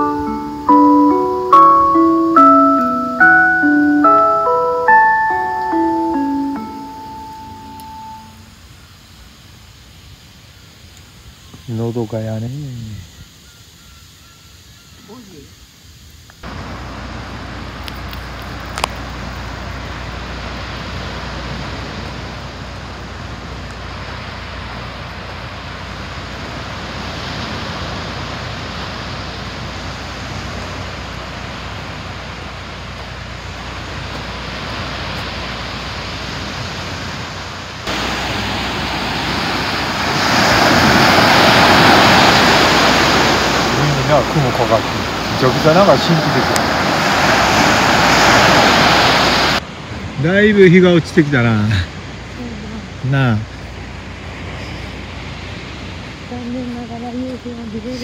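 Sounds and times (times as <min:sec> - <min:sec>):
waves breaking on beach: 0:16.4 - 0:58.0.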